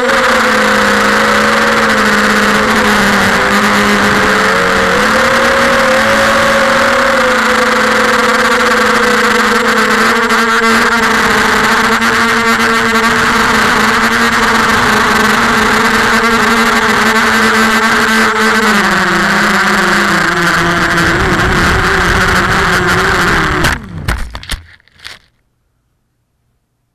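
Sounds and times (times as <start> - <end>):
quadcopter motors whining: 0.0 - 25.2
crackling knocks: 23.6 - 25.3.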